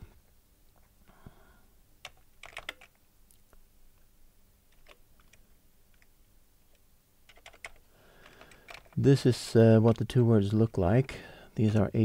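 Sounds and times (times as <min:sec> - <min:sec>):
keyboard typing: 0:02.0 - 0:03.0, 0:04.7 - 0:06.1, 0:07.3 - 0:09.0.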